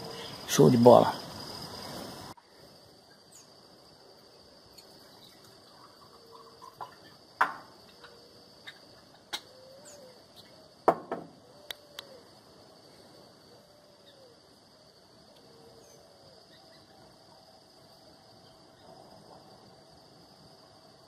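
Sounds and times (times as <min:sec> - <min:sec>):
high insect drone: 0:00.0 - 0:21.0
faint low bird calls: 0:04.7 - 0:07.2, 0:07.8 - 0:10.7, 0:11.4 - 0:12.4, 0:13.4 - 0:14.5, 0:15.3 - 0:17.4.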